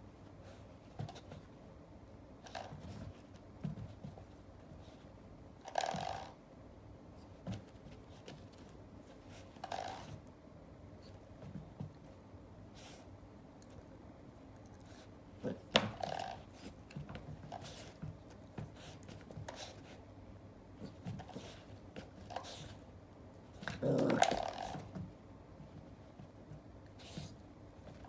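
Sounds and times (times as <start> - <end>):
puppy growling: 23.6 - 24.8.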